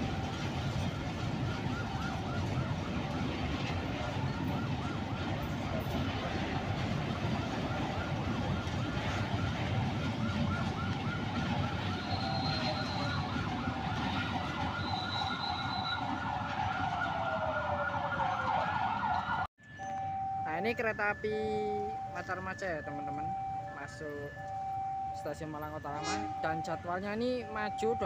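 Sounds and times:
train wheels rumbling on rails: 0.0s - 17.8s
wheels squealing: 11.8s - 16.2s.

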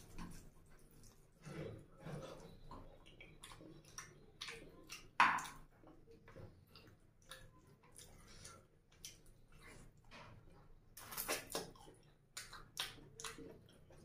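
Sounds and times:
chewing and lip smacks: 2.4s - 14.0s.

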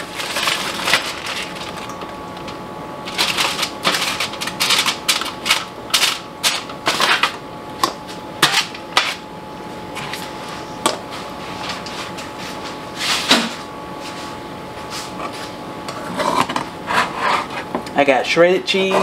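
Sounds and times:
aluminium foil crinkling: 0.0s - 6.7s.

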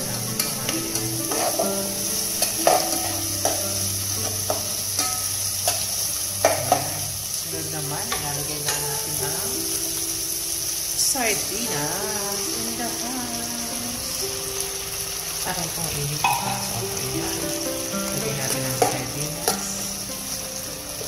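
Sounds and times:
food sizzling in hot oil: 0.0s - 21.0s
metal spoon scraping a pot: 0.1s - 6.9s.

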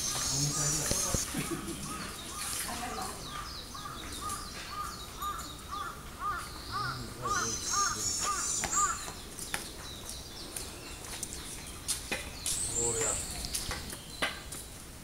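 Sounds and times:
high bird chirps: 0.0s - 2.6s, 3.2s - 11.6s
crow cawing: 3.8s - 9.1s.

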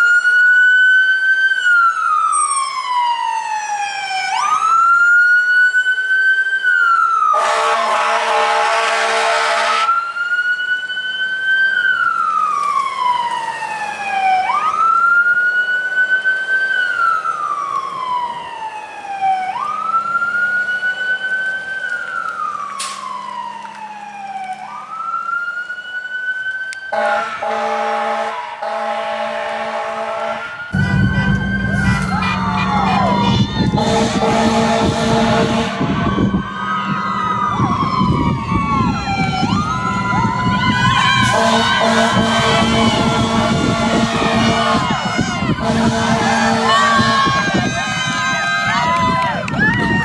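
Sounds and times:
fire engine siren wailing: 0.0s - 50.0s
air horn blasts: 7.4s - 10.0s, 26.9s - 37.0s, 40.3s - 47.6s.

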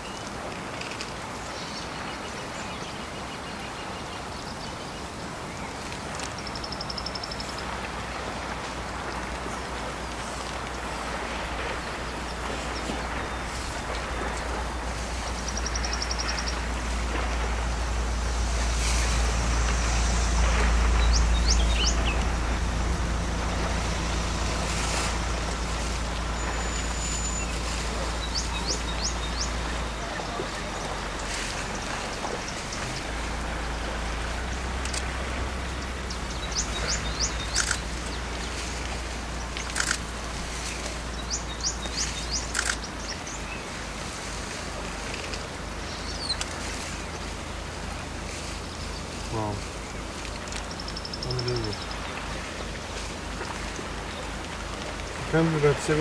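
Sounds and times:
birds chirping: 0.0s - 56.0s
broad hiss: 0.0s - 56.0s
low rumble: 7.4s - 43.7s.

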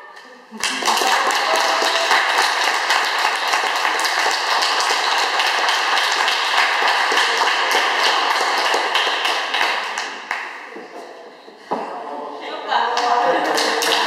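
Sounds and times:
audience applauding: 0.6s - 10.6s, 13.0s - 14.0s.

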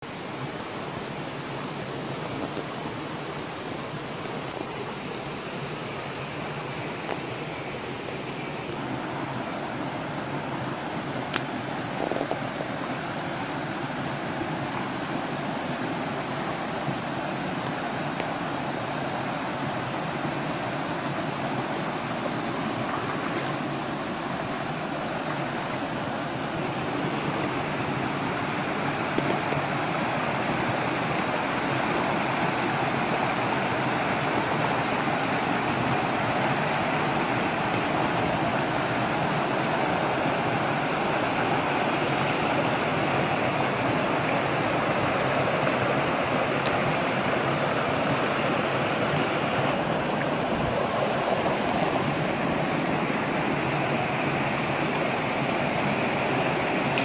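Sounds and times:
stream rushing over rapids: 0.0s - 57.0s.

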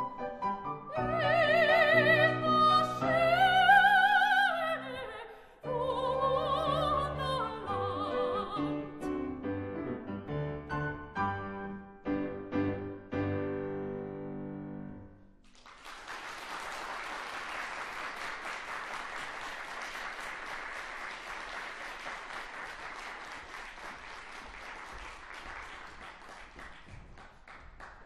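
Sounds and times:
audience applauding: 15.4s - 28.0s.

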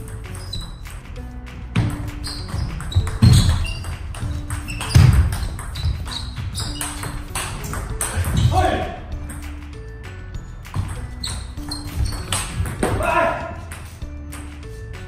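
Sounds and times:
background music: 0.0s - 15.0s
table tennis ball clicking: 10.8s - 12.9s.

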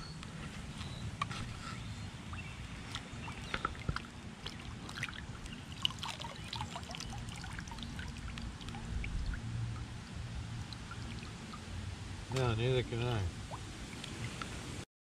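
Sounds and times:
steady low rumble: 0.0s - 14.8s
water dripping into river: 2.3s - 12.5s, 13.3s - 14.6s.

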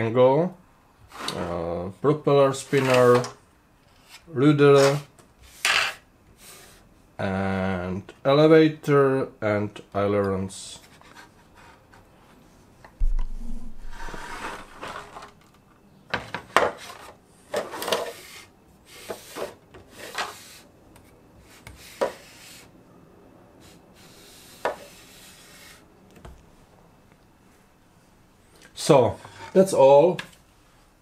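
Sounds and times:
sharp knocks and clicks: 13.0s - 13.6s
print bed scraping on wooden table: 13.7s - 15.4s, 21.5s - 22.7s.

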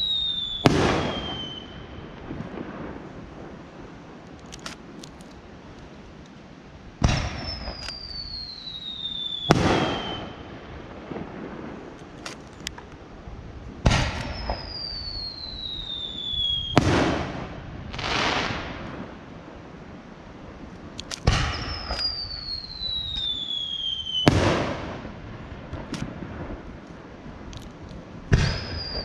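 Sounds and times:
falling firework whistle: 0.0s - 2.4s, 7.0s - 10.5s, 13.9s - 18.7s, 21.2s - 25.1s, 28.3s - 29.0s
faint firework crackles: 0.0s - 29.0s
firework launch bang: 0.6s - 1.6s, 7.0s - 7.8s, 9.5s - 10.4s, 13.8s - 14.7s, 16.7s - 19.0s, 21.2s - 23.3s, 24.2s - 25.1s, 28.3s - 29.0s
firework burst bang: 0.6s - 1.7s, 7.0s - 7.8s, 9.5s - 10.4s, 13.8s - 14.8s, 16.7s - 19.1s, 21.2s - 23.3s, 24.2s - 25.9s, 28.3s - 29.0s.

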